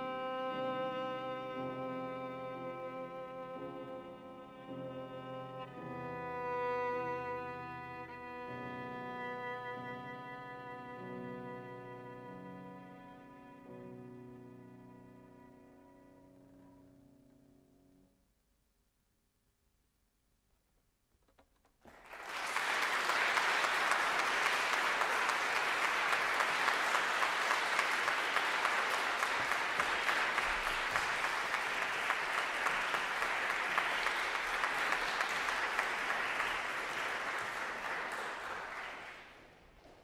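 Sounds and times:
audience applauding: 21.9s - 40.0s.

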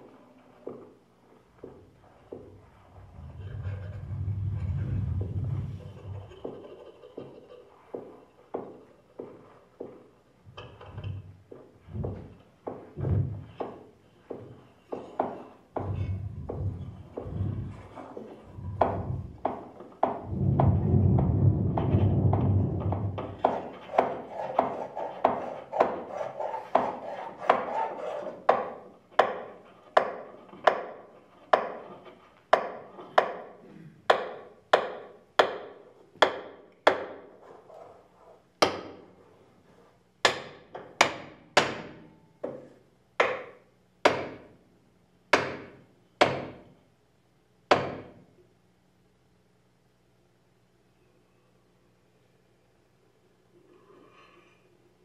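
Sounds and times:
dense ringing texture: 2.6s - 6.9s, 15.8s - 19.5s, 20.2s - 23.4s.

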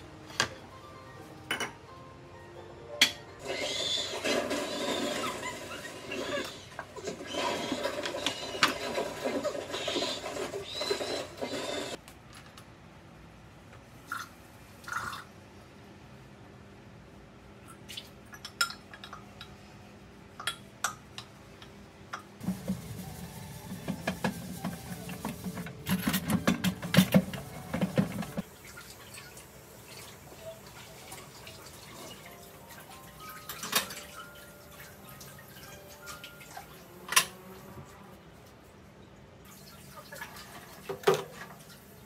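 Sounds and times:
dishes clinking: 1.5s - 1.8s.

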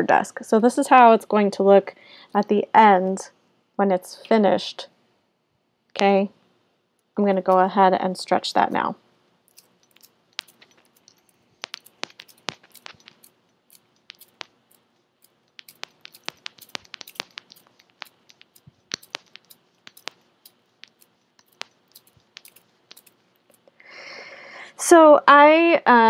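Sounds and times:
glass beads clicking together: 9.5s - 23.7s.

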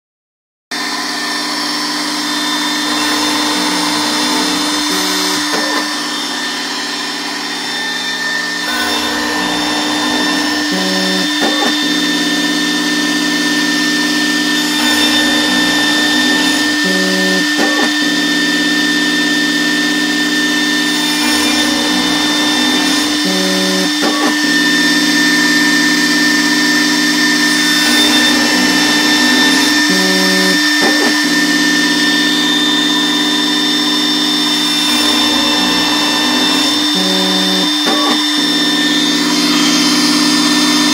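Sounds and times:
end mill cutting metal: 0.7s - 40.9s
router spindle whining: 0.7s - 40.9s
axis drives low tones: 2.8s - 13.7s, 14.7s - 18.5s, 21.2s - 25.1s, 27.5s - 33.7s, 34.9s - 39.2s.

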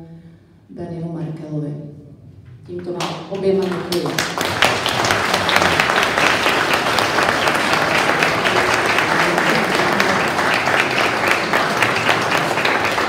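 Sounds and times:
group applauding: 3.0s - 13.0s.

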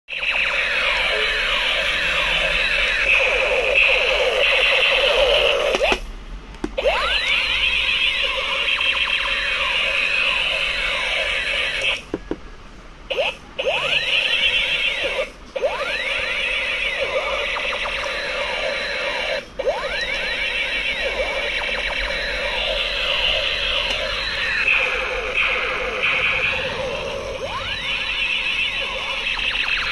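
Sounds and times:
toy gun zap tones: 0.1s - 6.0s, 6.8s - 12.0s, 13.1s - 29.9s.

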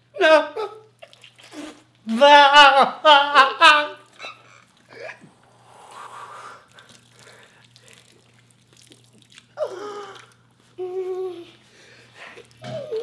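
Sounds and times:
person crying and wailing: 0.1s - 0.9s, 2.1s - 4.1s, 12.6s - 13.0s.

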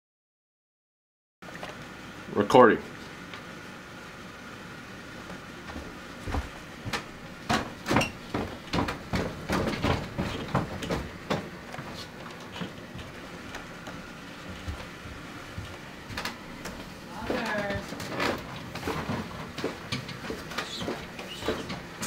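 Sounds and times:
footsteps down stairs: 5.2s - 13.2s, 13.9s - 22.0s.

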